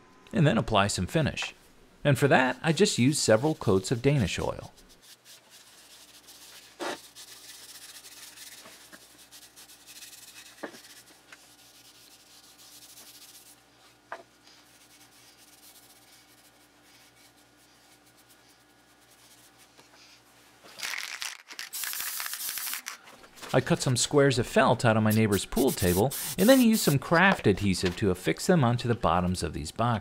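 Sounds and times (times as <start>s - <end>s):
rag rubbing on wood: 2.6s - 13.5s, 25.0s - 27.1s.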